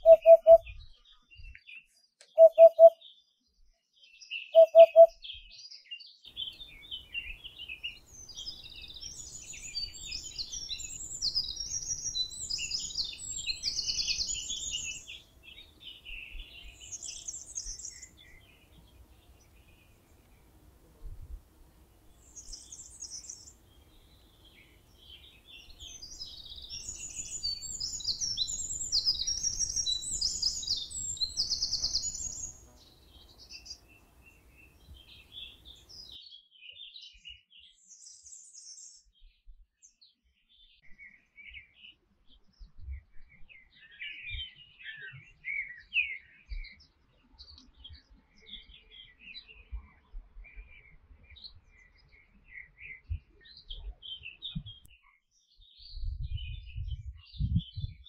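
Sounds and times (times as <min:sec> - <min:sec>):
canary twittering chirps: 0:00.0 - 0:00.6, 0:02.3 - 0:03.0, 0:04.6 - 0:05.1
canary trilling: 0:04.6 - 0:05.1
background hiss: 0:16.8 - 0:35.9.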